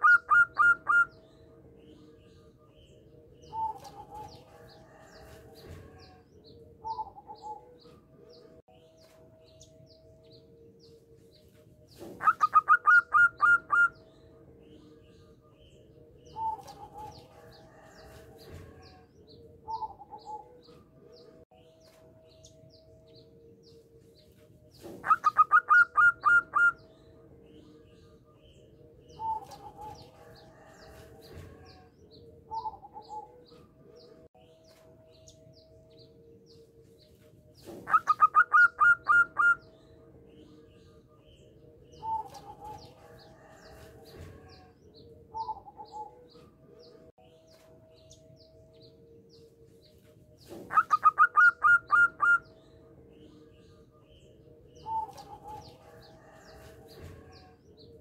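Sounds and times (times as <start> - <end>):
dove cooing song: 0.0 - 8.6, 11.9 - 21.4, 24.8 - 34.6, 37.6 - 47.1, 50.4 - 58.0.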